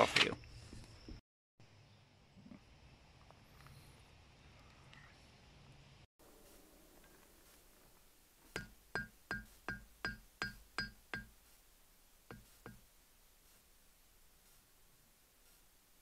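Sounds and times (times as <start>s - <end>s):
hammer striking hot iron on anvil: 8.6s - 11.3s, 12.3s - 12.8s.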